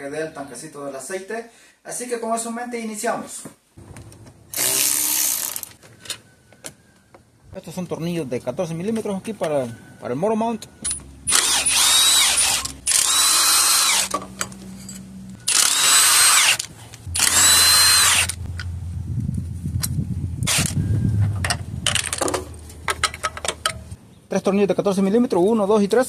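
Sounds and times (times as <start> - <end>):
power wrench bursts: 4.5 - 5.8, 11.3 - 14.2, 15.5 - 18.4, 20.5 - 20.8.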